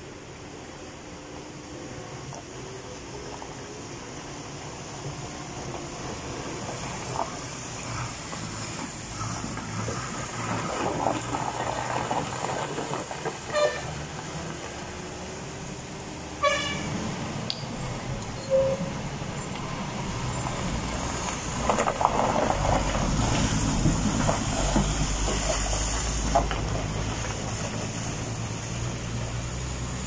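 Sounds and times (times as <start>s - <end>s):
truck engines rumbling: 0.0s - 30.0s
truck horn toots: 13.5s - 14.0s, 16.4s - 17.0s, 18.4s - 18.9s.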